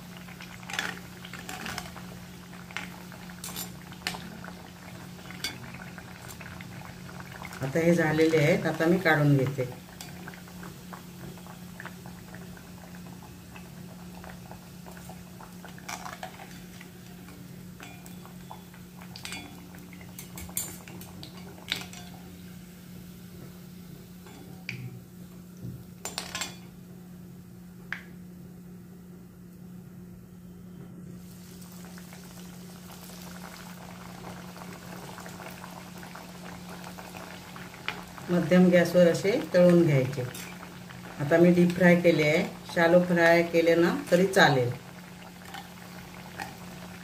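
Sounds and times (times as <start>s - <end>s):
hot oil sizzling: 0.0s - 25.1s, 31.2s - 47.0s
metal spoon scraping and clinking pot: 3.4s - 3.8s.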